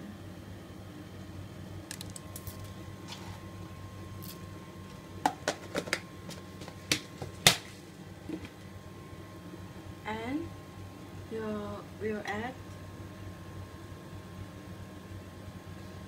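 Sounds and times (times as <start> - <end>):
peppercorns clicking into a pot: 1.8 - 2.7.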